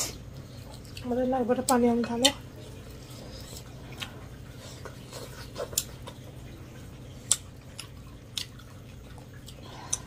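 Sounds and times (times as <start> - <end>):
steady low hum: 0.0 - 10.0
chewing and mouth smacks: 1.7 - 6.4, 7.1 - 10.0.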